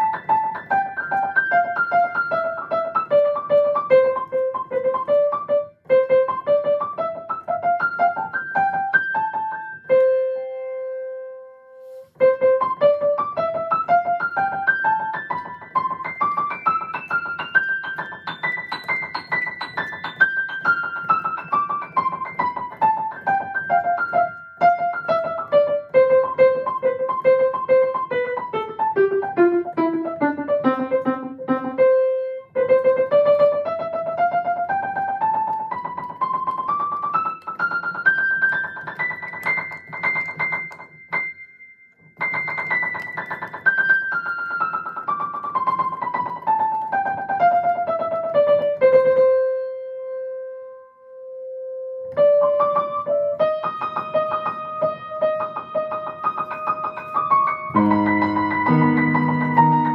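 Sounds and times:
piano fast runs: 52.2 - 59.9.

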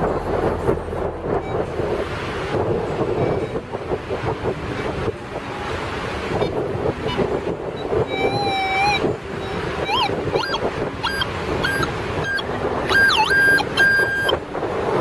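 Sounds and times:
surf: 0.0 - 15.0
wind: 0.0 - 15.0
metal detector beeps and tones: 7.8 - 14.4.

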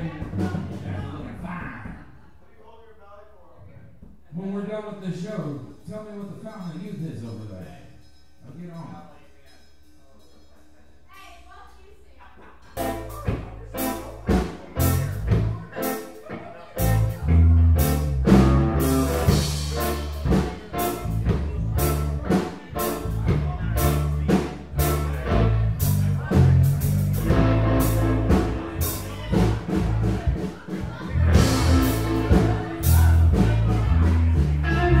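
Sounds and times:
live rock band playing: 12.7 - 35.0.

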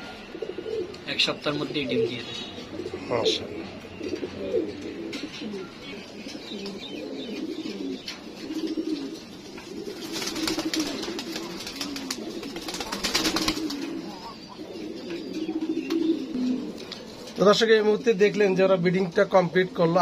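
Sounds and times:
pigeons cooing: 0.0 - 20.0
wings fluttering: 9.8 - 14.1.

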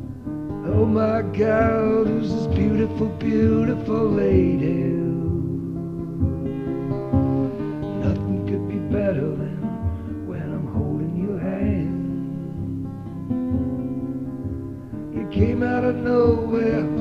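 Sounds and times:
acoustic guitar song: 0.0 - 17.0.

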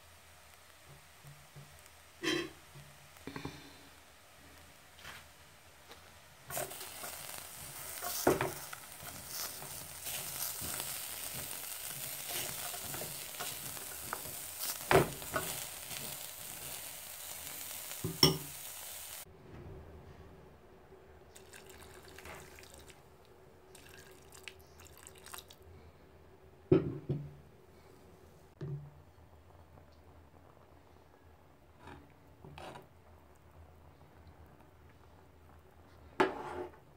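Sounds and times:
food sizzling in a pot: 0.0 - 19.3, 21.4 - 23.0, 23.7 - 25.6
stirring and scraping: 31.7 - 33.0.

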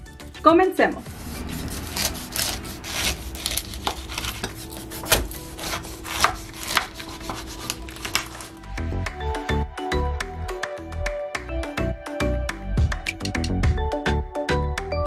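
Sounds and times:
knife crunching through rind: 1.2 - 8.6.

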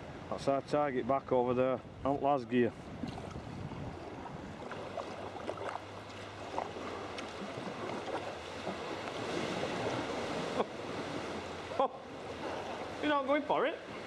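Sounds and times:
water splashing against kayak: 2.7 - 14.0
paddle drips and taps: 2.9 - 10.1.

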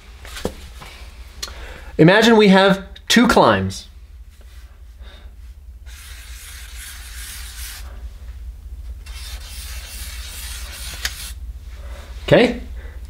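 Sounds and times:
pen scratching on paper: 5.9 - 7.9, 9.0 - 11.4.

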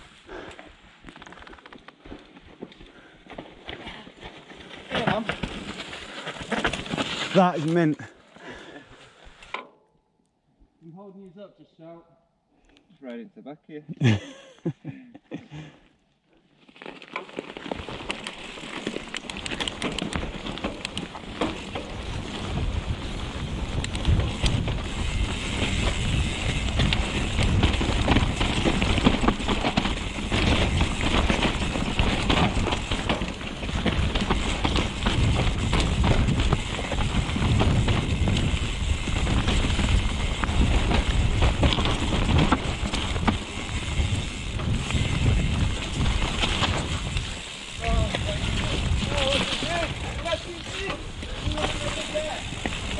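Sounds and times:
bike tyres rolling over dirt: 0.0 - 9.5, 16.3 - 52.9
bike rattling over bumps: 1.0 - 8.0, 16.5 - 52.9
wind buffeting microphone: 21.9 - 52.9.

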